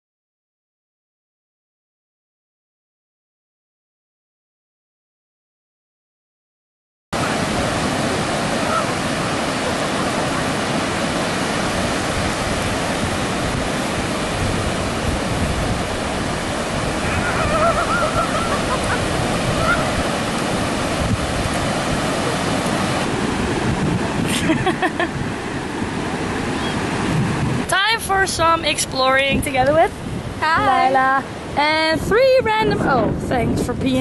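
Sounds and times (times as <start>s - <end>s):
ocean surf breaking: 7.2s - 33.2s
wind buffeting microphone: 7.2s - 34.0s
faint pitched calls: 17.0s - 18.6s.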